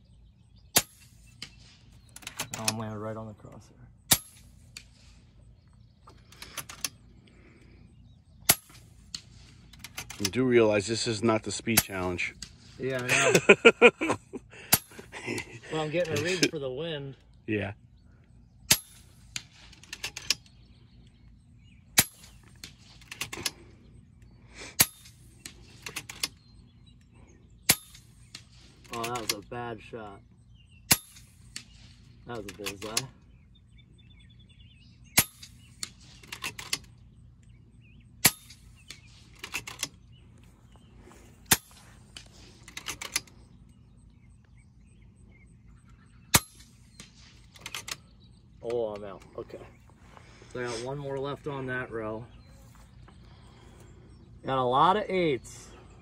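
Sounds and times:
air rifle shots: 0:00.7 - 0:02.8, 0:04.0 - 0:05.4, 0:08.4 - 0:10.4, 0:11.7 - 0:13.2, 0:14.7 - 0:15.1, 0:18.6 - 0:20.5, 0:21.9 - 0:23.6, 0:24.7 - 0:26.4, 0:27.6 - 0:29.4, 0:30.8 - 0:33.1, 0:35.1 - 0:37.0, 0:38.1 - 0:40.0, 0:41.4 - 0:43.4, 0:46.3 - 0:48.0
air rifle crack: 0:08.4 - 0:10.4, 0:14.5 - 0:16.5, 0:18.6 - 0:20.5, 0:21.9 - 0:23.7, 0:24.6 - 0:26.4, 0:27.6 - 0:29.4, 0:41.4 - 0:43.5
rifle action clicking: 0:38.2 - 0:40.0, 0:41.5 - 0:43.3.

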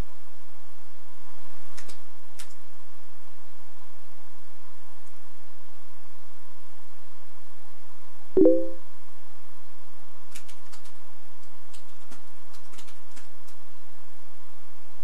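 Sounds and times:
short pitched notification pop: 0:08.4 - 0:08.8
keyboard keys clicking: 0:11.8 - 0:13.2.

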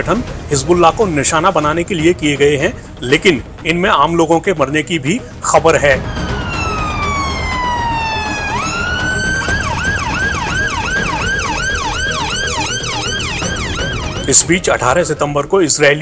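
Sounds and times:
ambulance siren wailing and yelping: 0:05.6 - 0:14.5.

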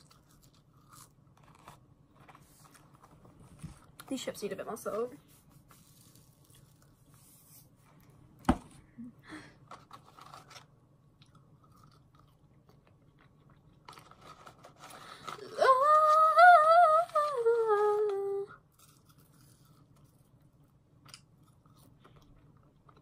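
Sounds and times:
chewing fries: 0:00.0 - 0:03.2, 0:11.1 - 0:14.8, 0:18.6 - 0:23.0
woman humming with mouth full: 0:15.4 - 0:18.6.

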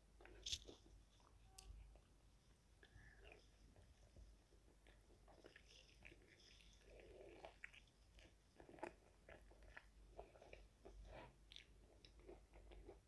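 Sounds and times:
chewing crispy chicken: 0:04.6 - 0:13.0.

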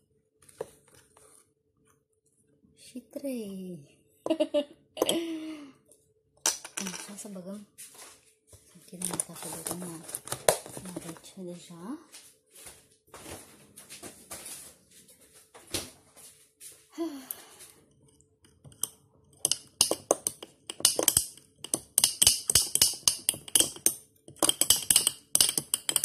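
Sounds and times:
spoon clinking in glass jar: 0:18.7 - 0:26.0.

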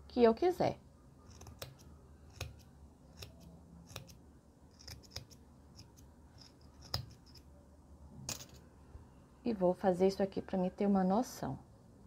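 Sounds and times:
scissors snipping yarn: 0:01.2 - 0:07.4.

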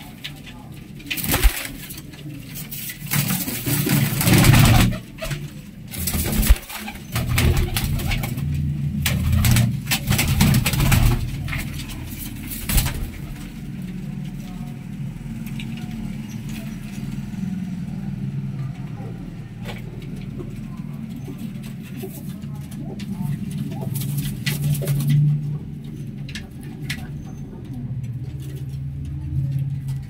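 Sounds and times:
pigeons cooing: 0:00.0 - 0:30.0
loud rustling bursts: 0:00.9 - 0:13.7.

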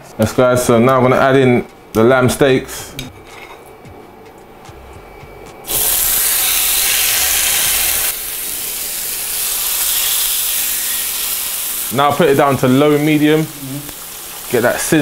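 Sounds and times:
meat sizzling in hot oil: 0:05.7 - 0:15.0.

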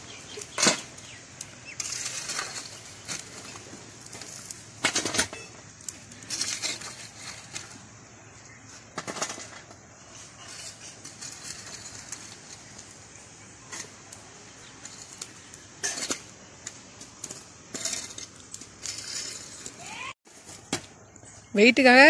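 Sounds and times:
metal rod scraping charcoal: 0:00.1 - 0:20.6.

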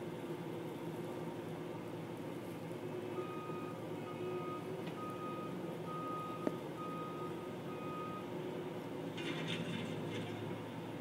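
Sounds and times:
backup alarm beeping: 0:03.2 - 0:08.3.

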